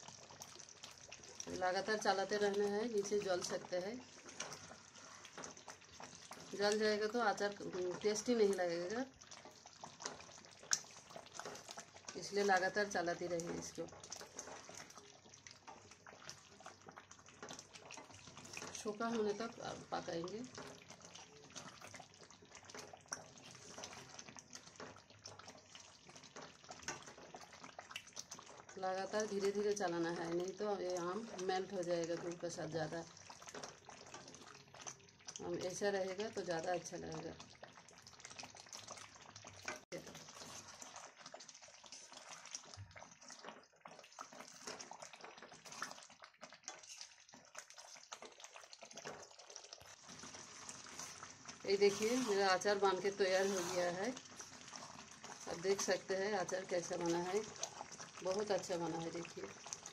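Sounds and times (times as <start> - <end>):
thick syrup bubbling and popping: 0.0 - 59.9
spatula scraping a pan: 49.9 - 56.2.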